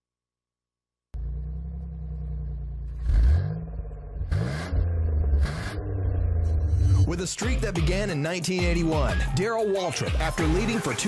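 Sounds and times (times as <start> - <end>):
racing car engines revving: 1.2 - 7.8.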